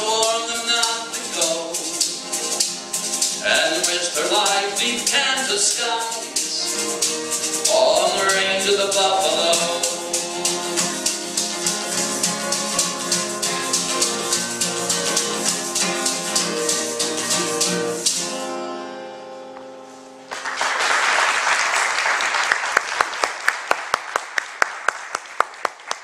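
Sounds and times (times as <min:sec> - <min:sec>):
sharp percussive beat: 0:00.0 - 0:18.4
acoustic guitar playing: 0:00.0 - 0:20.4
audience applause: 0:20.3 - 0:26.0.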